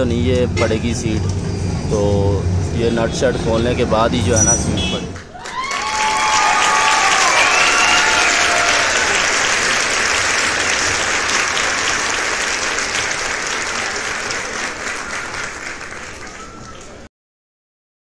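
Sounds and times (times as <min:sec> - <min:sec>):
crowd cheering: 0:04.9 - 0:17.1
crowd clapping: 0:04.9 - 0:17.1.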